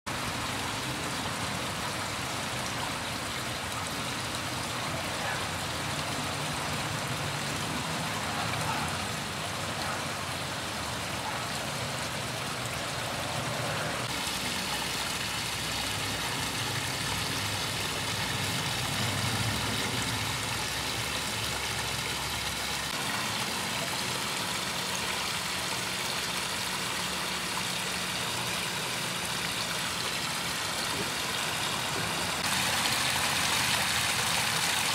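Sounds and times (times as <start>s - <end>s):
waterfall splashing into pond: 0.1s - 34.9s.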